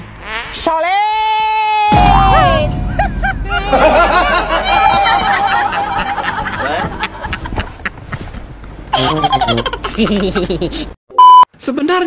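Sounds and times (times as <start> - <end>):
laughter: 5.2 - 8.4, 9.0 - 11.0.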